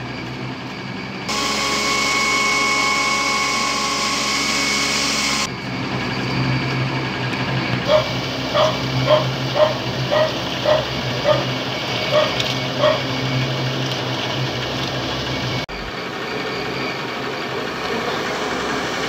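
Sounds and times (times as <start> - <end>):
steady machine hum: 0.0 - 19.0
dog barking: 7.9 - 13.1.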